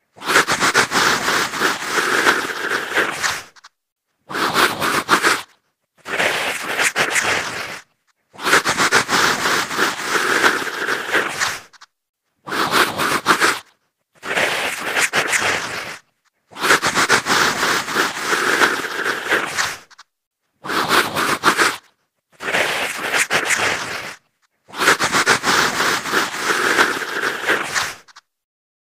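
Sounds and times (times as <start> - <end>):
woman growling and snarling: 0.2 - 3.6, 8.4 - 11.7, 16.6 - 19.9, 24.8 - 28.1.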